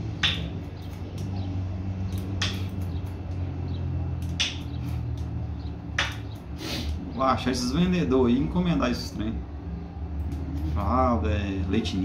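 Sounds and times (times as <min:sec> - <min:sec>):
steady low hum: 0:00.0 - 0:12.0
scissors snipping hair: 0:02.1 - 0:03.4, 0:04.2 - 0:05.4, 0:10.2 - 0:11.0.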